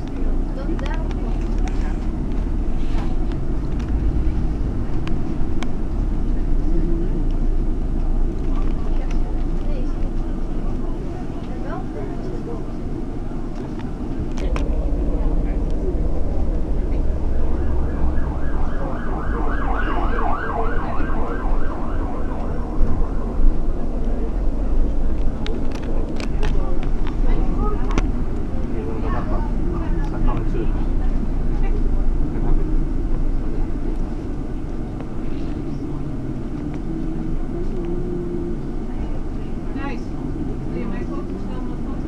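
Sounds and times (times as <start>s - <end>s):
bus rumbling: 0.0s - 42.0s
low hum: 1.2s - 42.0s
emergency siren yelping: 16.6s - 24.0s.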